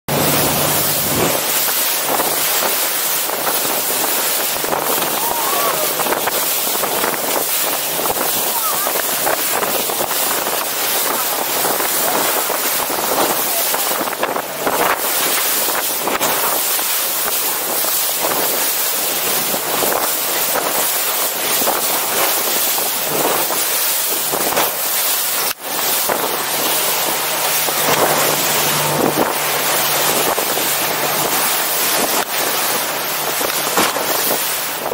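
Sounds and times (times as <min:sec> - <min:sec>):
low engine hum: 0:00.1 - 0:02.6, 0:26.2 - 0:33.6
water rushing along hull: 0:00.1 - 0:34.9
wind buffeting microphone: 0:00.1 - 0:34.9.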